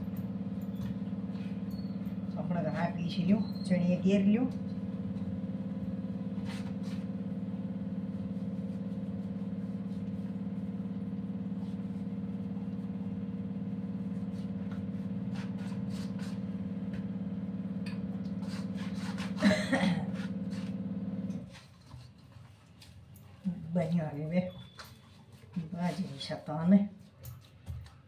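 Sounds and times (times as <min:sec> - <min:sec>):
electric flour mill motor hum: 0:00.0 - 0:21.6.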